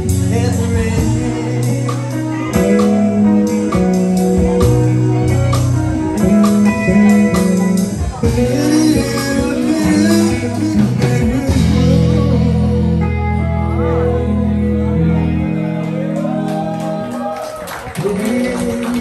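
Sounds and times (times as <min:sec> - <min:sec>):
man singing into a microphone: 0:00.0 - 0:04.8, 0:06.5 - 0:16.4, 0:17.9 - 0:19.0
drums: 0:00.0 - 0:14.3
electric guitar: 0:00.0 - 0:19.0.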